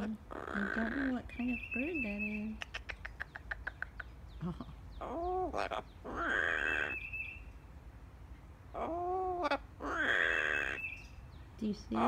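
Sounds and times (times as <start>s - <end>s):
parrot clicks and calls: 2.5s - 4.2s
parrot harsh squawk: 5.0s - 7.0s, 8.8s - 10.9s.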